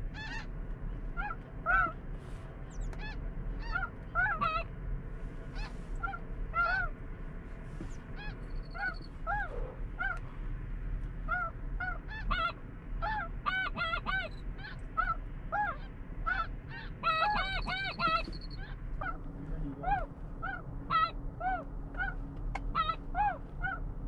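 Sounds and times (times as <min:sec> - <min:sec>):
geese honking: 0:03.0 - 0:04.7, 0:11.3 - 0:19.2.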